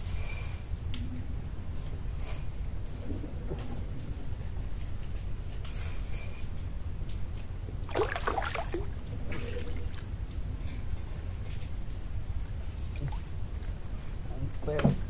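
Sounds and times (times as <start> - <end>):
fish splashing and thrashing: 7.8 - 10.1.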